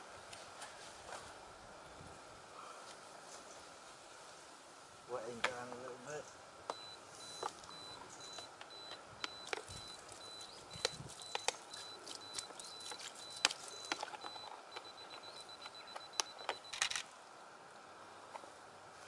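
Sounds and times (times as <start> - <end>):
sharp clicks and crackles: 7.4 - 17.1.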